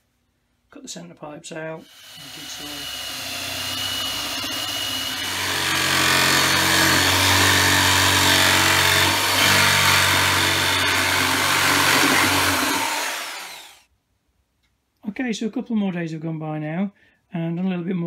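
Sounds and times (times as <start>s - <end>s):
cordless drill boring: 1.8s - 13.8s
electric jigsaw cutting: 1.8s - 13.9s.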